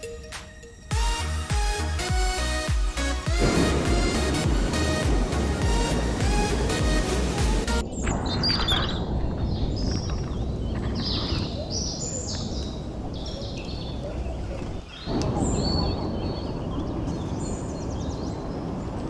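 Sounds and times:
birds chirping: 0:00.0 - 0:19.0
stream rushing: 0:01.2 - 0:07.9.

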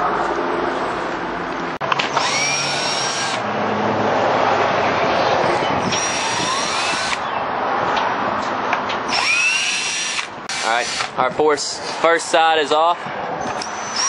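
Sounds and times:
cordless drill whining: 0:01.9 - 0:03.4, 0:05.8 - 0:07.3, 0:09.1 - 0:11.2, 0:13.4 - 0:14.0.

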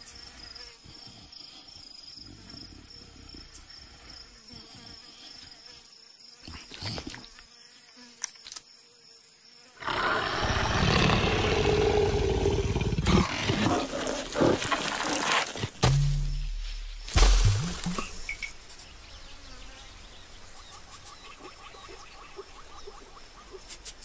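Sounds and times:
faint insect buzzing: 0:00.0 - 0:24.0
cartoon leopard roaring: 0:09.8 - 0:15.6.

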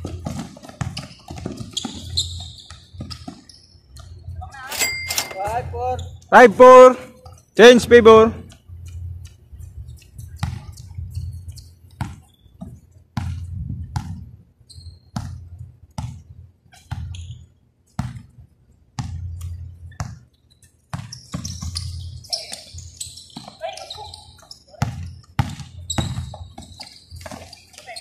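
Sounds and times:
basketball dribbled on hard court: 0:00.0 - 0:03.5, 0:12.0 - 0:14.2, 0:18.0 - 0:18.3, 0:20.9 - 0:22.0, 0:24.8 - 0:27.9.

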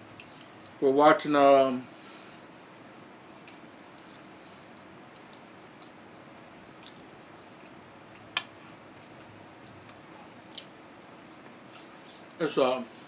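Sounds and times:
quiet chewing: 0:00.1 - 0:00.8, 0:03.3 - 0:12.4.

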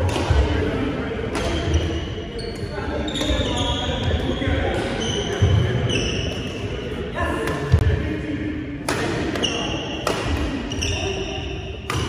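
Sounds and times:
rackets hitting shuttlecock: 0:01.3 - 0:02.0, 0:08.8 - 0:11.0, 0:11.8 - 0:12.0
shoes squeaking: 0:01.5 - 0:06.6, 0:10.7 - 0:12.0.

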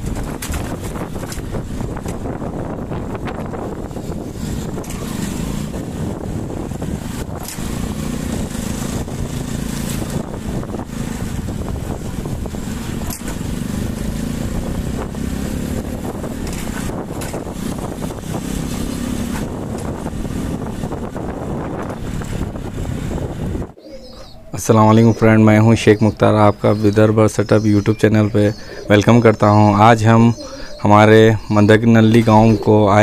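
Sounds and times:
motorcycle engine running: 0:00.0 - 0:23.7
wind noise on microphone: 0:00.0 - 0:33.0.

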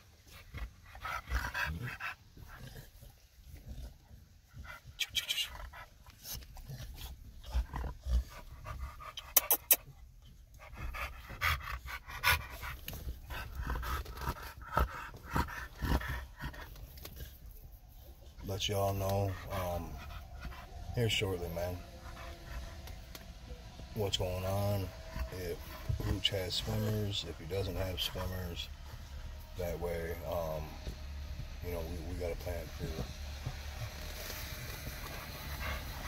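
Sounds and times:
dogs panting: 0:00.0 - 0:36.0.

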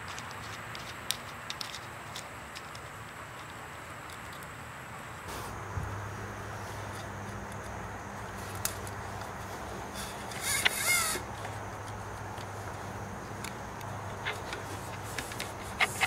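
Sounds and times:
steady low hum: 0:00.0 - 0:16.0
cable scraping squeak: 0:09.9 - 0:11.3, 0:15.6 - 0:16.0.

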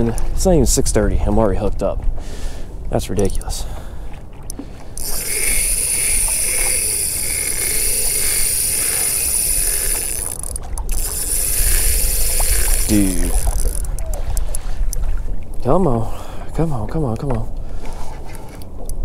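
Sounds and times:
fishing reel whirring: 0:04.5 - 0:14.7.

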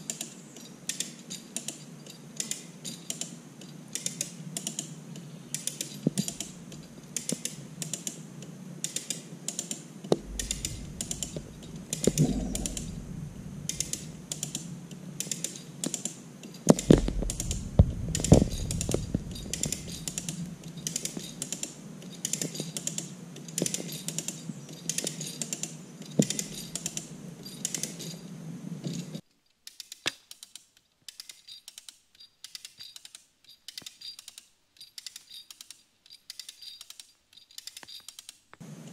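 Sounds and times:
rope puller ratchet clicking: 0:05.5 - 0:08.2, 0:16.8 - 0:28.0, 0:29.6 - 0:38.4
low thud: 0:10.2 - 0:14.8, 0:16.7 - 0:20.9.

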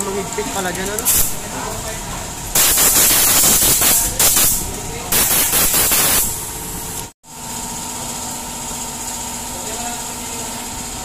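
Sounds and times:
air blow gun hissing: 0:01.1 - 0:01.4, 0:02.6 - 0:06.5.

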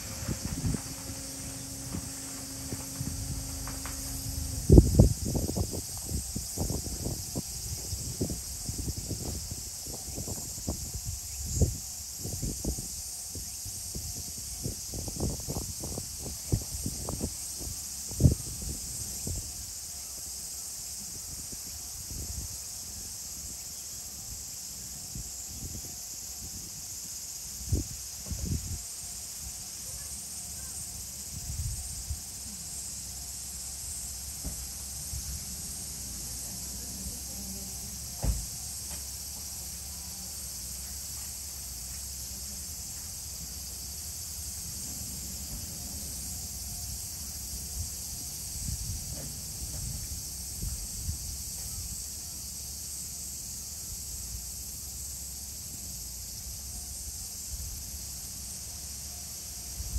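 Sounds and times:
low rumbles: 0:00.0 - 0:07.9
insect chorus: 0:00.0 - 0:59.9
sharp knock: 0:38.2 - 0:39.0.

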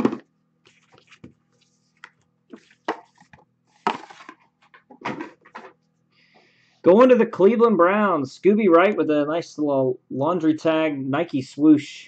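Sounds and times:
cards clattering: 0:02.0 - 0:05.8.

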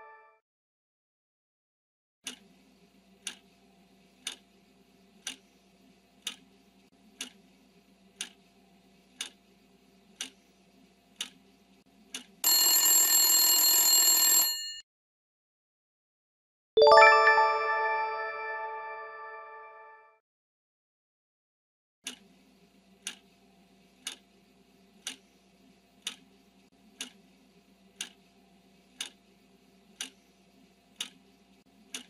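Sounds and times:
clock ticking: 0:03.2 - 0:03.4, 0:04.2 - 0:04.4, 0:10.2 - 0:10.4, 0:24.0 - 0:24.2, 0:26.0 - 0:26.2, 0:31.0 - 0:31.2
alarm bell ringing: 0:12.5 - 0:14.8
bright chime: 0:16.8 - 0:19.6.

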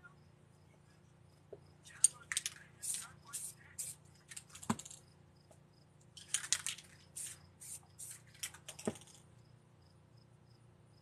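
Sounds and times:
cricket chirping: 0:00.0 - 0:11.0
gloved hand rubbing surface: 0:02.7 - 0:05.0, 0:06.4 - 0:09.1.

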